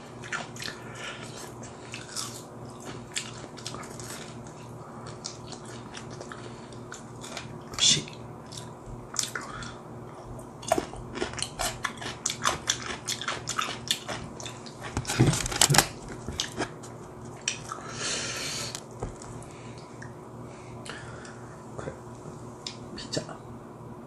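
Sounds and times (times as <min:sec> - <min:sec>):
person chewing: 0:00.2 - 0:18.0.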